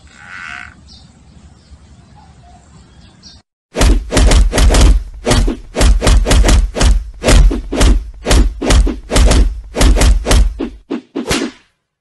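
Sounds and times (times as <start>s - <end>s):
loud thumps and whacks: 3.7s - 11.7s.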